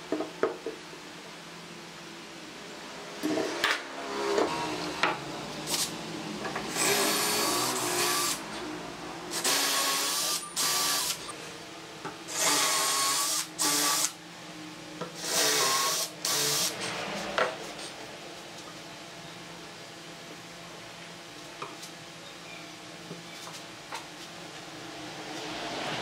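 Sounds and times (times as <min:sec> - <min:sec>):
cordless drill boring into wood: 0:06.7 - 0:08.4, 0:09.3 - 0:11.2, 0:12.3 - 0:14.1, 0:15.2 - 0:16.7.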